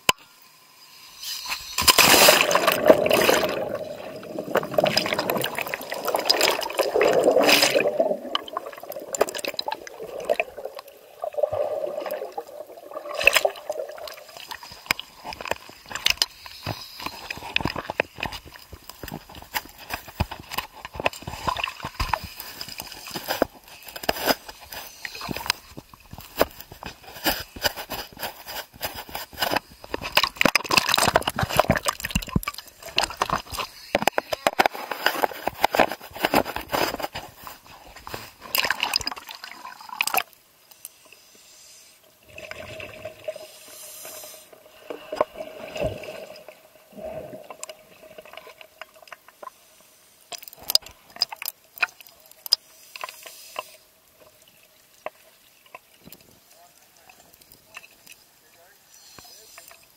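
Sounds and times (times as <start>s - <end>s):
dense crackles: 1.2s - 39.4s
water splashing and bubbling: 1.8s - 40.6s, 42.1s - 49.5s, 50.3s - 53.2s.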